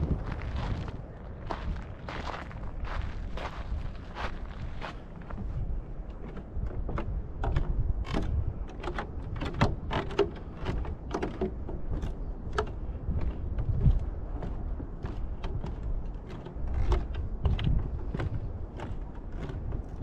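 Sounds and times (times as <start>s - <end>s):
footsteps on wooden boardwalk: 0.0s - 20.0s.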